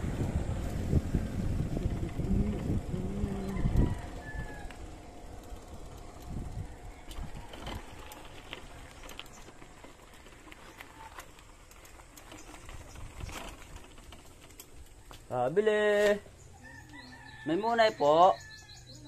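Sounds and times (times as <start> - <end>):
low rumble: 0.0 - 9.7.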